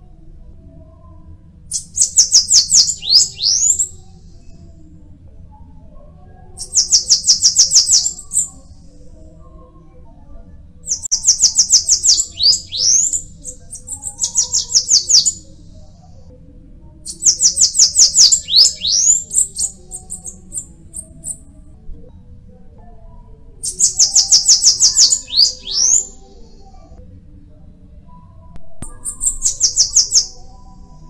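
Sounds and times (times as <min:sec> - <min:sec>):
bird singing high thin song: 0:01.7 - 0:04.6, 0:06.6 - 0:08.9, 0:10.8 - 0:15.5, 0:17.1 - 0:21.5, 0:23.6 - 0:26.7, 0:28.8 - 0:31.0.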